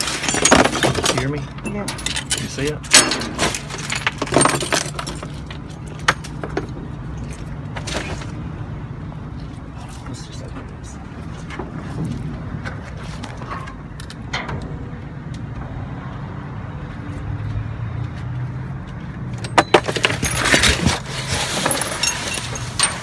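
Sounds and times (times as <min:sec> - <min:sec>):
plastic bags and cardboard rustling: 0:19.8 - 0:23.0.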